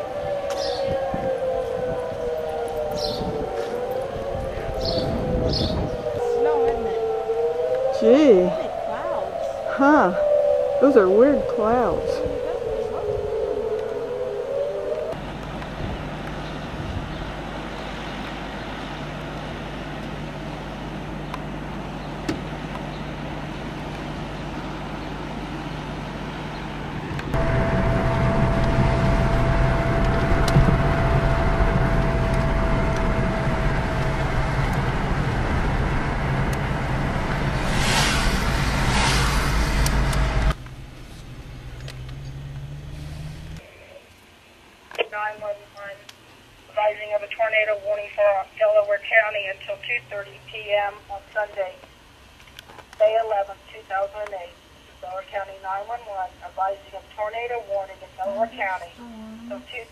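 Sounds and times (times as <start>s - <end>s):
thin steady whine: 0.0s - 59.9s
car driving rumble: 14.8s - 43.6s.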